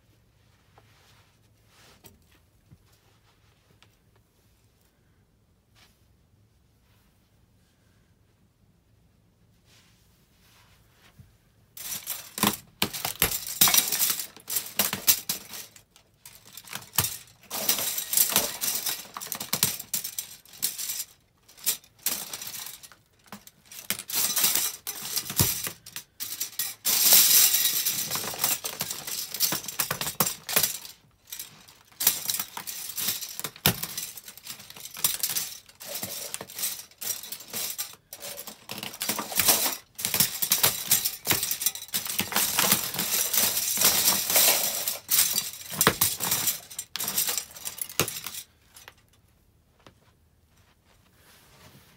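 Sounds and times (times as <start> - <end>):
plastic spoons crushed underfoot: 11.8 - 49.0.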